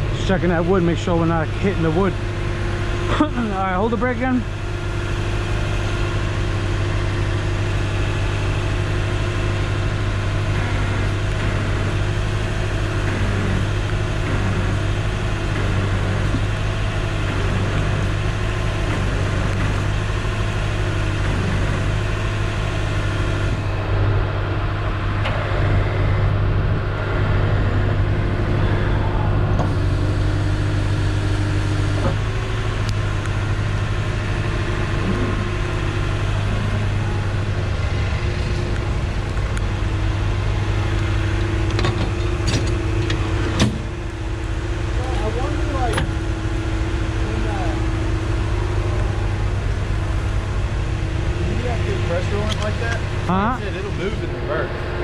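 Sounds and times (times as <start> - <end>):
truck engine idling: 0.0 - 55.0.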